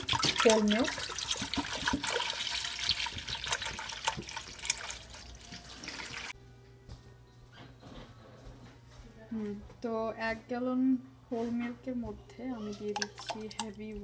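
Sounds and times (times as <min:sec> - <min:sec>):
milk pouring into metal pot: 0:00.0 - 0:06.4, 0:12.9 - 0:13.8.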